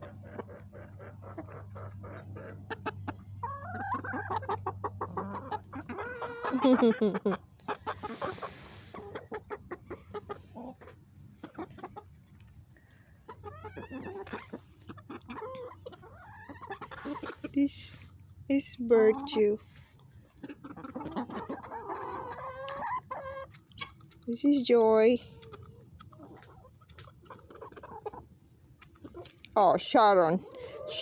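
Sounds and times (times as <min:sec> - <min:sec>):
beaks pecking grain: 0:00.0 - 0:06.6, 0:07.6 - 0:31.0
hens clucking: 0:00.0 - 0:31.0.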